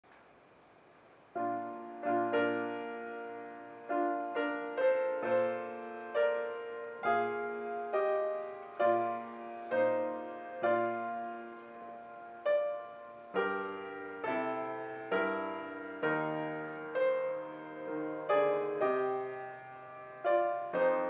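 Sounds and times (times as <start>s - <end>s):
piano playing slow chords: 1.4s - 21.0s.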